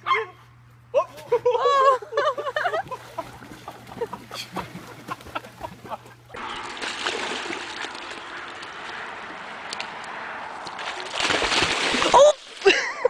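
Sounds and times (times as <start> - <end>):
dog splashing in water: 2.8 - 9.1, 10.8 - 12.7.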